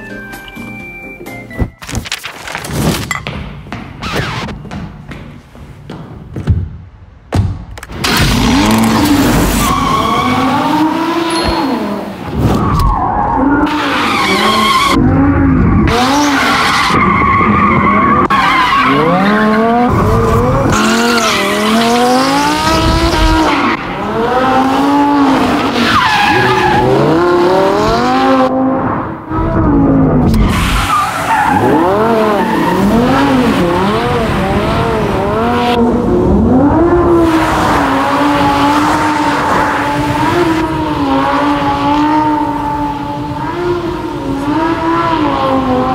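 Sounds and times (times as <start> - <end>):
tyres squealing and skidding: 8.4 - 23.8, 24.4 - 28.3, 30.3 - 34.2
car engine revving: 31.3 - 45.9.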